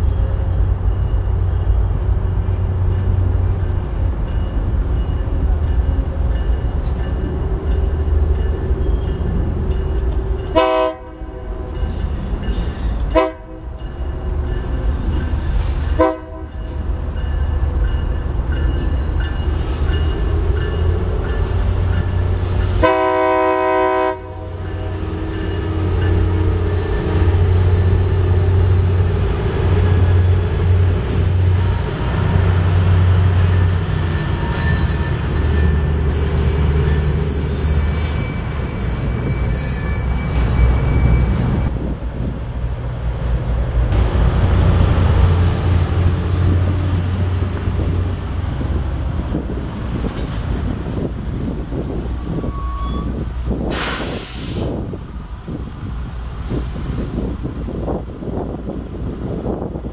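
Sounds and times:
train rumble: 0:00.0 - 0:59.9
locomotive air horn blasts: 0:10.5 - 0:11.6, 0:13.1 - 0:13.7, 0:15.9 - 0:16.6, 0:22.8 - 0:25.3.

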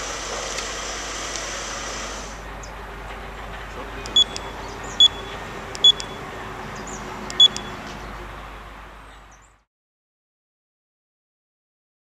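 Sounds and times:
steady background hum: 0:00.0 - 0:08.4
short high beeps: 0:04.2 - 0:06.2, 0:07.3 - 0:07.8.

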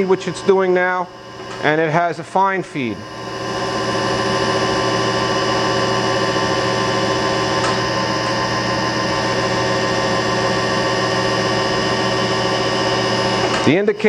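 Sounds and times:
grinding machine hum: 0:00.0 - 0:14.0.

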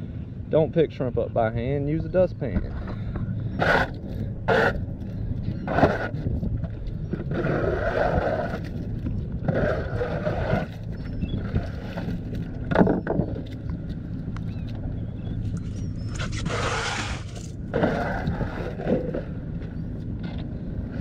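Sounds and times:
steady low hum: 0:00.0 - 0:21.0
plastic dustpan scraping wooden deck: 0:16.2 - 0:18.3.

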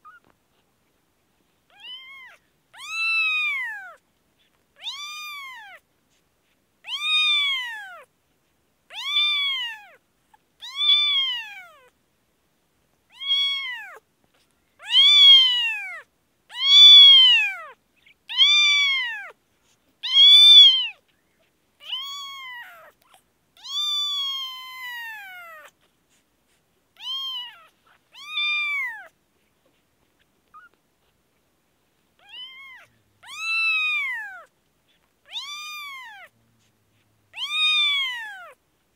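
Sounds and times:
kitten meowing: 0:01.7 - 0:04.0, 0:04.8 - 0:05.8, 0:06.8 - 0:08.1, 0:08.9 - 0:10.0, 0:10.6 - 0:11.9, 0:13.1 - 0:14.0, 0:14.8 - 0:19.4, 0:20.0 - 0:21.0, 0:21.8 - 0:25.8, 0:27.0 - 0:29.2, 0:32.2 - 0:34.5, 0:35.3 - 0:36.3, 0:37.3 - 0:38.6.

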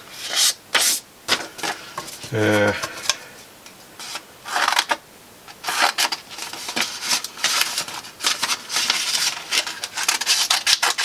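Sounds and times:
paper crinkling: 0:04.0 - 0:05.0, 0:05.6 - 0:11.0
scissors snipping paper: 0:06.8 - 0:11.0.

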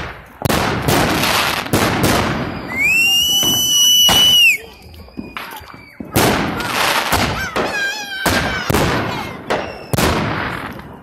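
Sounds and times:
fireworks bangs with echo: 0:00.0 - 0:11.0
wavering high firework whistle: 0:02.4 - 0:08.8, 0:09.4 - 0:10.2.

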